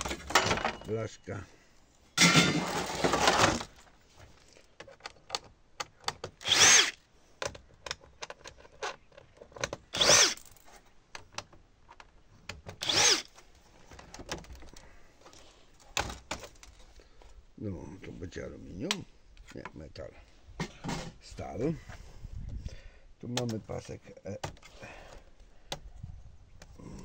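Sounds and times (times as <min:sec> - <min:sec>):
loud scraping: 0:02.2 - 0:03.7
cordless drill motor whine: 0:06.4 - 0:07.0, 0:09.9 - 0:10.5, 0:12.8 - 0:13.3
handling clicks and taps: 0:11.1 - 0:12.8, 0:23.3 - 0:24.7.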